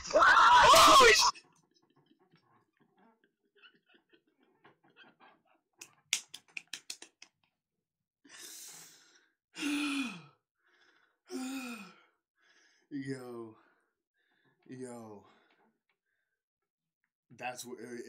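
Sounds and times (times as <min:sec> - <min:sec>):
wheezing breath and sigh: 0:08.2 - 0:16.4.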